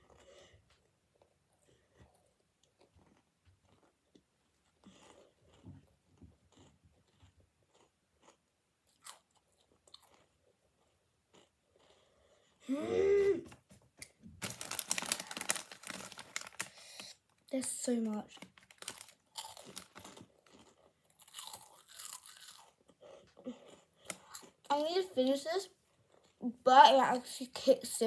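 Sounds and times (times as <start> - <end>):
chewing crunchy snacks: 0.0 - 12.6, 14.0 - 25.0, 25.8 - 26.5
person groaning: 12.7 - 13.5.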